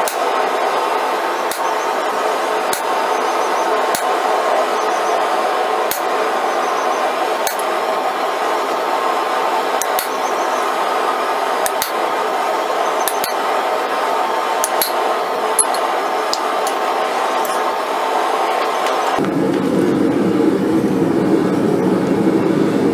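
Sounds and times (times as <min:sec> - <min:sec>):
steady loud roar: 0:00.0 - 0:22.9
hammer striking chisel on steel: 0:07.5 - 0:07.7, 0:09.8 - 0:10.2, 0:11.6 - 0:12.0, 0:13.0 - 0:13.4, 0:14.6 - 0:15.0, 0:15.6 - 0:16.8.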